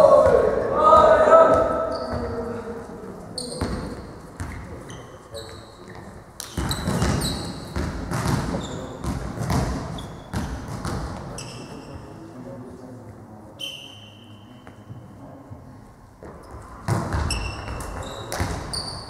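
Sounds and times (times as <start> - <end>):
ball bouncing on hall floor: 0.0 - 2.5, 3.4 - 4.7, 5.9 - 11.6, 16.2 - 19.0
sneaker squeaks on court floor: 1.8 - 2.4, 3.4 - 12.2, 13.6 - 15.0, 16.3 - 19.0.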